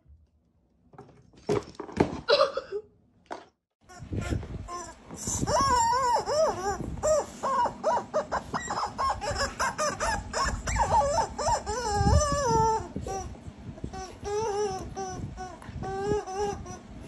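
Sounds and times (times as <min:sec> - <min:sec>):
squeaky dog toy squeaking: 0:03.9 - 0:13.3, 0:13.9 - 0:16.8.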